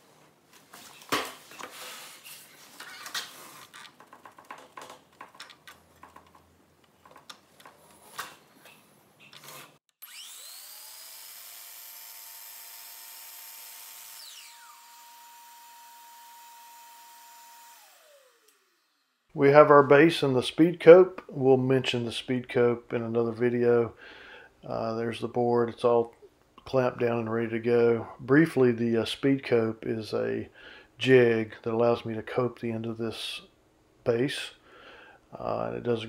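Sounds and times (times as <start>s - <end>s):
miter saw motor whining: 10.0s - 19.1s.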